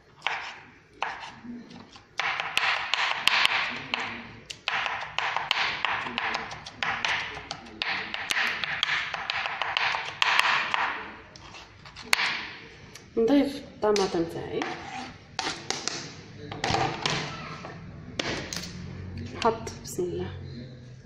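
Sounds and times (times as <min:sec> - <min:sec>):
knife chopping on wooden board: 0:00.2 - 0:12.5, 0:14.0 - 0:17.4, 0:18.2 - 0:18.6.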